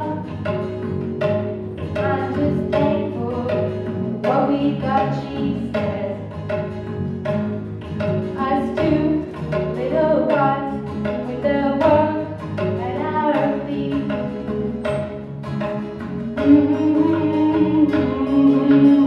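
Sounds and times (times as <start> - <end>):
acoustic guitars: 0.0 - 19.0
tabla beat: 0.0 - 19.0
woman singing: 2.0 - 6.3, 8.4 - 14.2, 16.4 - 19.0.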